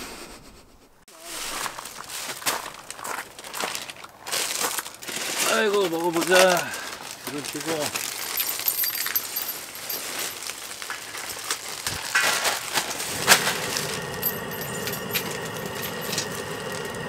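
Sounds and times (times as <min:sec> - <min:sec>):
rustling and light clinks: 0:01.6 - 0:17.0
gas burner hissing: 0:11.8 - 0:17.0.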